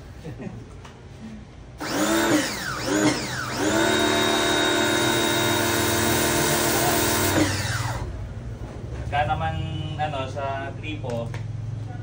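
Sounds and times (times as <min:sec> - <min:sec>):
pressure washer motor whine: 0:01.8 - 0:08.2.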